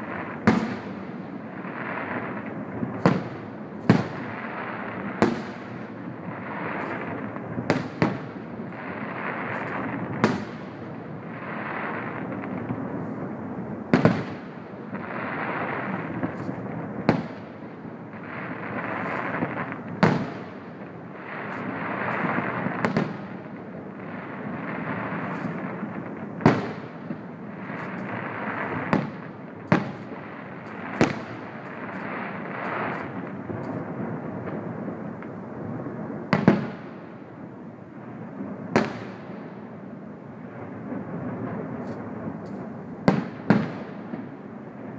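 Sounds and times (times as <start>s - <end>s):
firework shells bursting: 2.0s - 10.7s, 18.2s - 23.4s, 24.2s - 34.6s.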